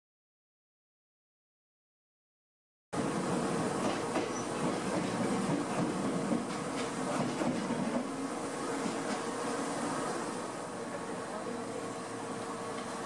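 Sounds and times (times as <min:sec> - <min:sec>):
electric train humming: 0:03.0 - 0:13.0.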